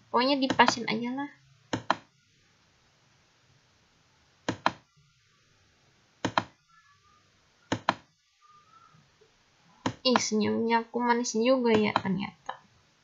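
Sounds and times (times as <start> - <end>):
computer mouse button clicks: 1.8 - 2.1, 6.2 - 6.5, 7.7 - 8.0.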